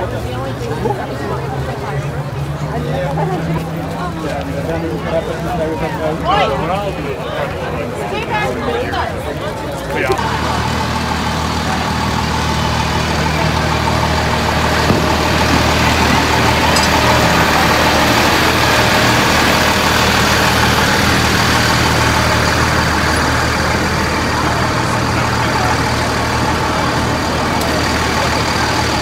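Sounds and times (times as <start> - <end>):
fire engine idling: 0.0 - 29.0.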